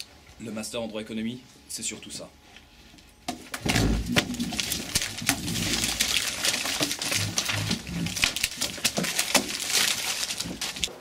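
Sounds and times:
paper rustling and tearing: 3.6s - 11.0s.

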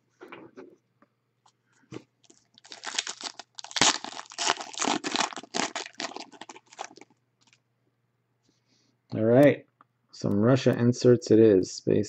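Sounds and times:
foil wrapper crinkling: 2.2s - 7.6s.

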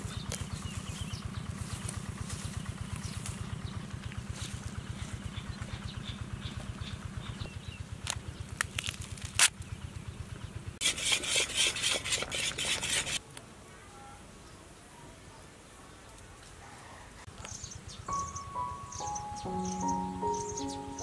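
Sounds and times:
small engine running: 0.0s - 13.2s
knife cutting watermelon rind: 10.8s - 13.2s.

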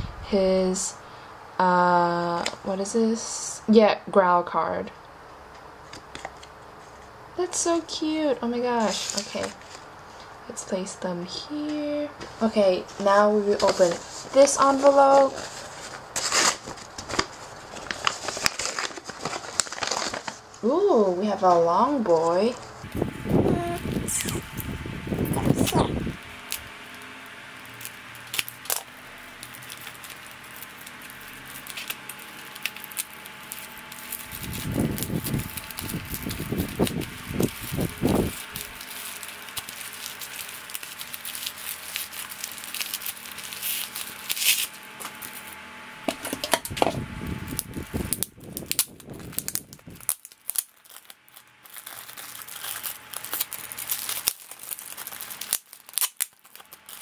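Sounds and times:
bubble wrap crinkling: 8.5s - 9.9s, 12.4s - 45.6s, 46.2s - 57.0s.

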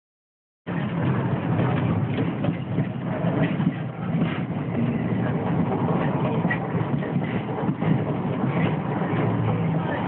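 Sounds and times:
streetcar motors and wheels on rails: 0.7s - 10.0s.

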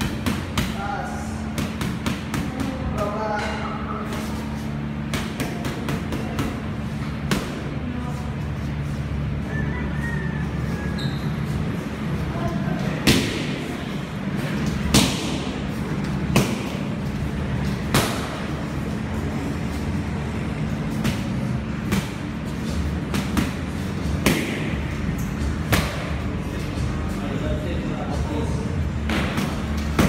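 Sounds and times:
strikes landing on pads: 14.8s - 15.6s, 16.2s - 16.9s, 17.8s - 18.5s, 24.2s - 24.8s, 25.6s - 26.2s, 29.0s - 30.0s.

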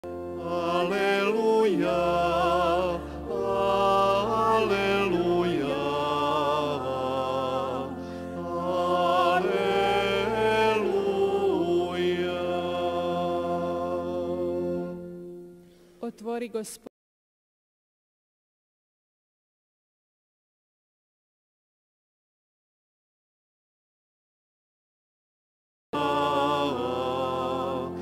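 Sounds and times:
person singing a chant: 0.0s - 15.0s, 26.0s - 28.0s
sustained accompanying chords: 0.0s - 16.0s, 26.0s - 28.0s.

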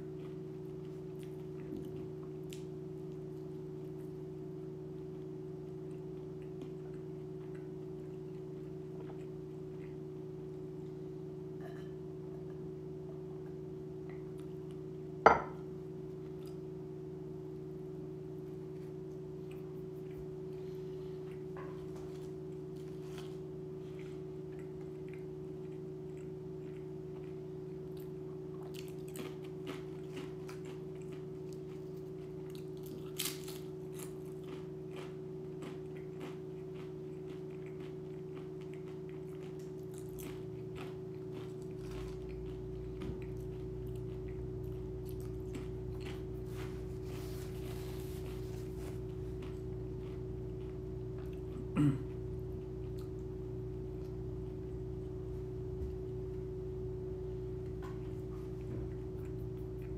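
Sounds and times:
person chewing and crunching food: 0.0s - 59.9s
steady appliance hum: 0.0s - 59.9s
deeper hum: 40.3s - 59.9s.

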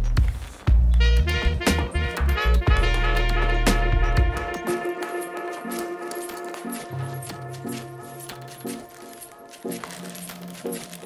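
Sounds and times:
drums: 0.0s - 4.9s
bass line: 0.8s - 4.5s.

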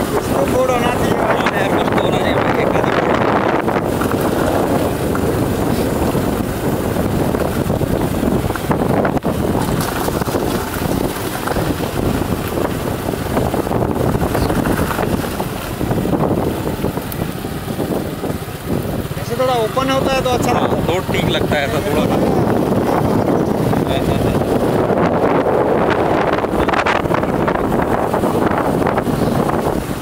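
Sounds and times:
riding noise: 0.0s - 30.0s
wind buffeting microphone: 0.0s - 30.0s.

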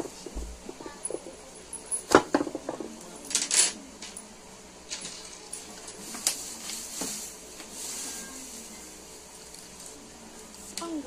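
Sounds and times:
rattle of small knocks: 0.0s - 4.2s.

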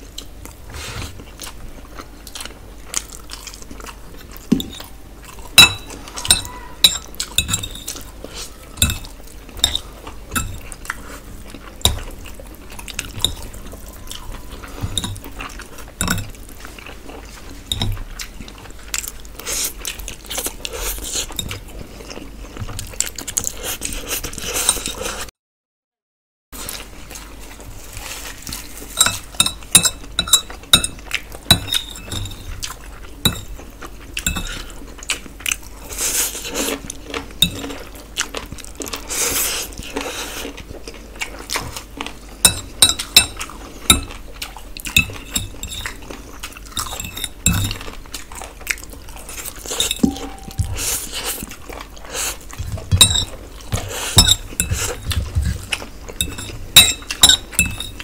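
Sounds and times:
chewing: 0.1s - 25.3s, 26.6s - 58.0s
fork clinking on a plate: 5.6s - 8.0s, 29.0s - 32.5s, 44.9s - 46.0s, 46.8s - 47.8s, 49.6s - 51.1s, 52.9s - 53.4s, 54.1s - 55.2s, 56.2s - 58.0s
fingers working rice on steel platter: 52.6s - 58.0s.

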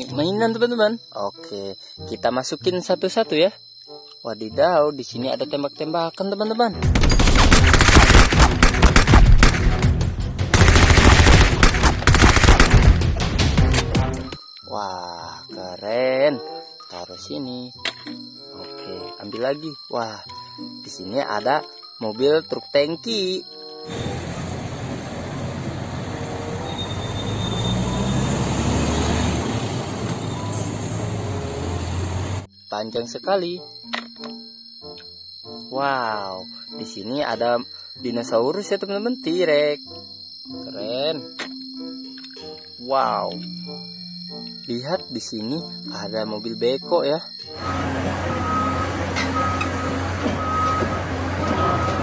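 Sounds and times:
background music: 0.0s - 25.2s, 31.2s - 52.0s
rapid gunfire-like shots: 6.8s - 13.2s
road and tyre noise: 23.9s - 32.5s, 47.6s - 52.0s
truck engine running low: 23.9s - 32.5s, 47.6s - 52.0s.

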